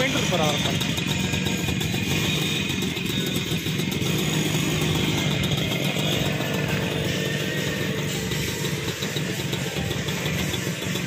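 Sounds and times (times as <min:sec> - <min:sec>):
moped engine idling: 0:00.0 - 0:11.0.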